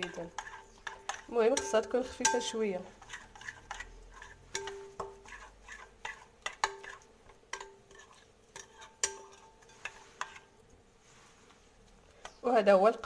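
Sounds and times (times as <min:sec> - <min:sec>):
spoon stirring thick batter: 0:00.0 - 0:12.6
spoon clinking on glass bowl: 0:00.4 - 0:02.6, 0:04.5 - 0:05.2.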